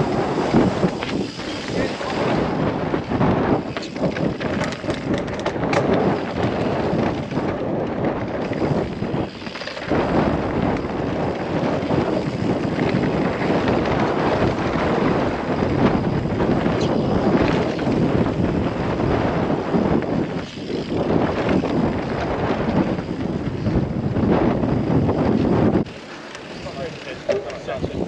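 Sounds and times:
wind buffeting microphone: 0:00.0 - 0:28.0
bike knocking over rough ground: 0:03.2 - 0:11.0.

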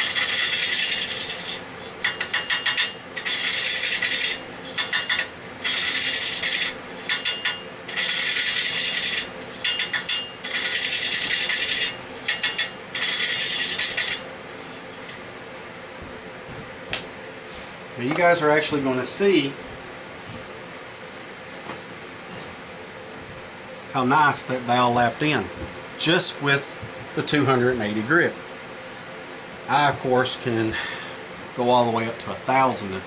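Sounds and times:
valve lapping gritty rasp: 0:00.0 - 0:14.2.

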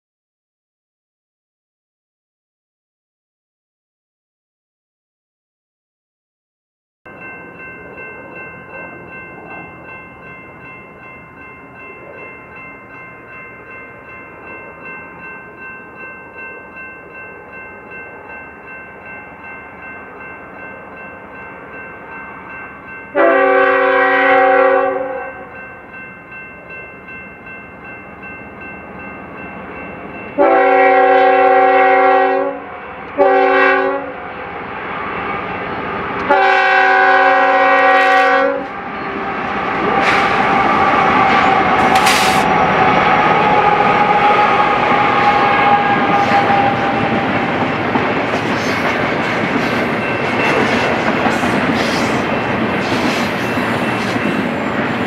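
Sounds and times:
train rumble: 0:07.1 - 0:55.0
locomotive air horn blasts: 0:23.2 - 0:25.5, 0:30.4 - 0:34.2, 0:36.3 - 0:38.8.

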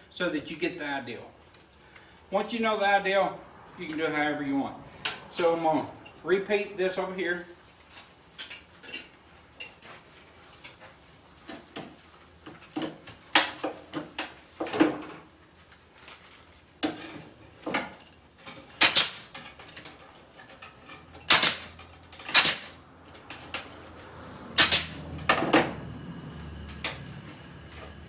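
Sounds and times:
pneumatic ring gun snapping: 0:18.8 - 0:19.3, 0:21.3 - 0:22.8, 0:24.6 - 0:25.0.

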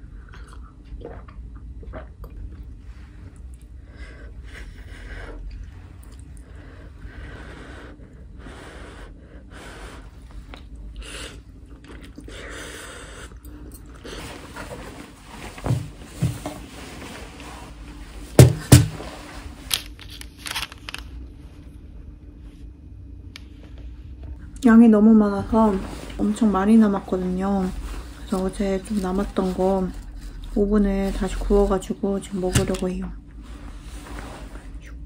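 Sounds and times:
noodles slurped and chewed: 0:00.0 - 0:03.8, 0:10.4 - 0:14.2.

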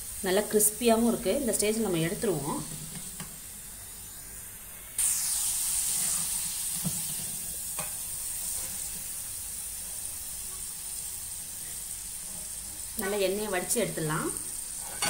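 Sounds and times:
fries sizzling in hot oil: 0:00.0 - 0:15.0.

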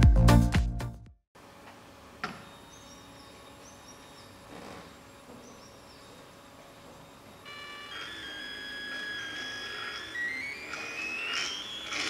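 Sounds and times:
stepper motor whine: 0:07.3 - 0:12.0.

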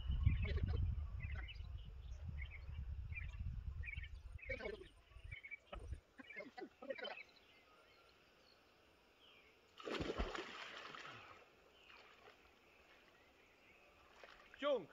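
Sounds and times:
wind rumbling on microphone: 0:00.0 - 0:06.0.

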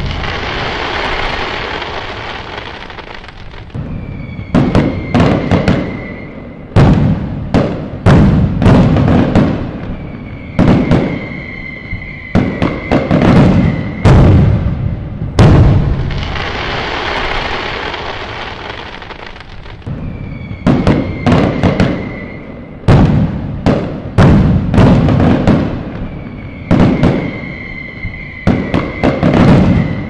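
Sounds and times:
firework whistle: 0:00.0 - 0:07.4, 0:08.7 - 0:14.7, 0:15.7 - 0:23.5, 0:24.8 - 0:30.0
firework crackling: 0:00.0 - 0:30.0
fireworks booming: 0:00.0 - 0:30.0.

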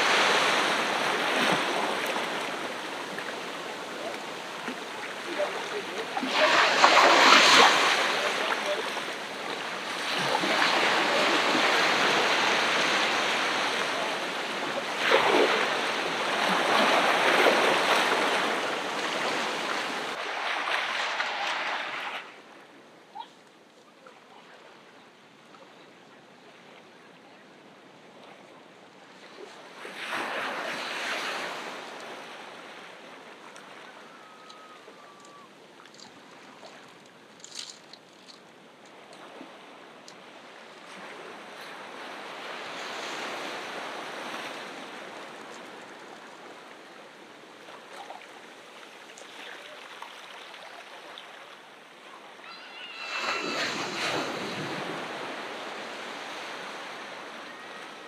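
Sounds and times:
ocean surf breaking: 0:00.0 - 0:22.5, 0:39.4 - 0:46.9, 0:52.3 - 0:58.0.

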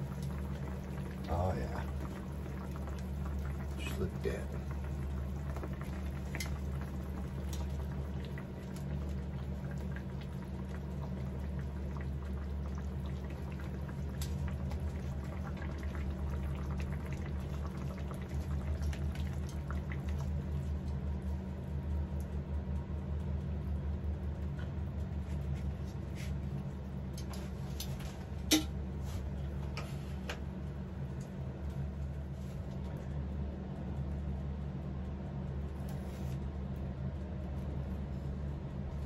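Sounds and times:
meat simmering in sauce: 0:00.0 - 0:29.3
low hum: 0:00.0 - 0:39.0.

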